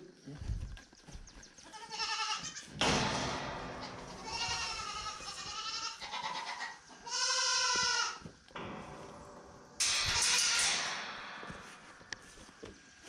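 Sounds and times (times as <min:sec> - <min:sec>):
goats bleating: 0:01.7 - 0:02.8, 0:04.1 - 0:08.2.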